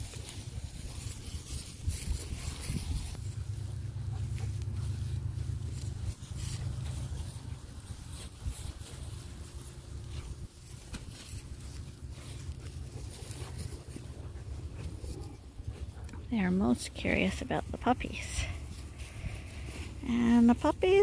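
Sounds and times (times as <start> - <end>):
sheep tearing and chewing grass: 0.0 - 21.0
wind on microphone: 0.9 - 3.2.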